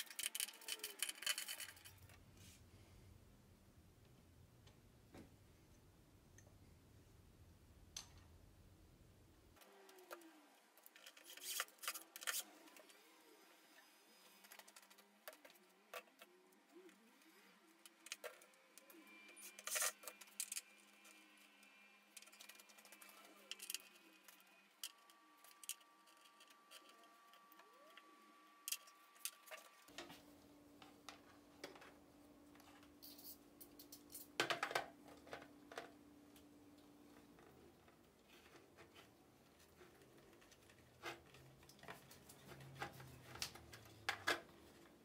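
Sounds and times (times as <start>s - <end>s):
small parts clicking and tapping: 0.0s - 2.2s, 14.4s - 30.1s, 30.8s - 39.0s
faint steady background hum: 0.0s - 45.0s.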